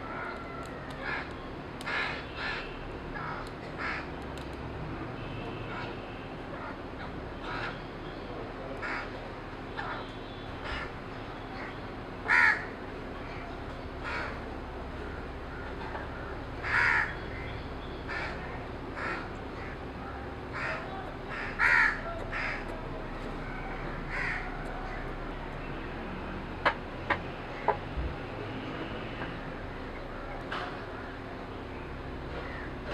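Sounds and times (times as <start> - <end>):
crows cawing: 0.0 - 4.1, 7.4 - 7.9, 8.8 - 9.2, 10.6 - 11.0, 11.6 - 13.4, 14.0 - 14.5, 15.1 - 17.5, 18.1 - 19.8, 20.5 - 22.8, 23.4 - 25.1, 32.3 - 32.8.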